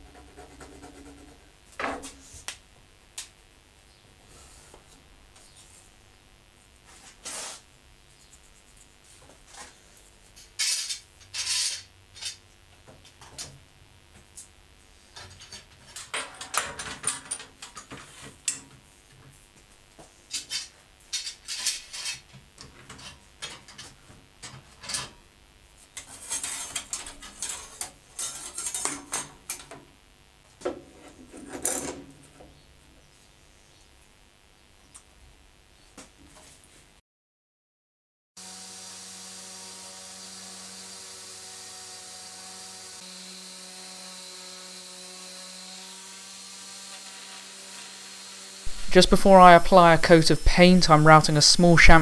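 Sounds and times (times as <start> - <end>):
metal clamps clattering and scraping: 15.2 - 18.6, 20.4 - 25.2.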